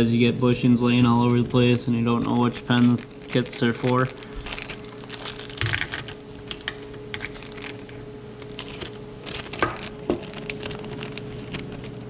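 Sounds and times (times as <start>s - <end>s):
steady low hum: 0.0s - 12.0s
plastic bag crinkling: 1.1s - 12.0s.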